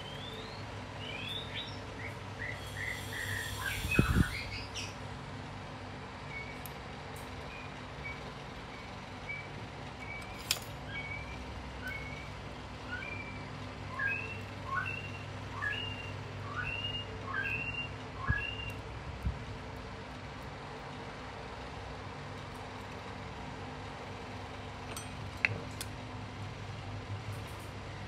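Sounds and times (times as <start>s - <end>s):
bird chirping: 0.0s - 5.0s, 12.9s - 18.8s
steady low hum: 0.0s - 28.0s.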